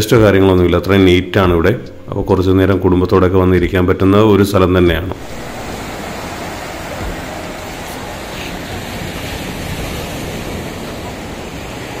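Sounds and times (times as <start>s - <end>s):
waves breaking on a beach: 5.2s - 12.0s.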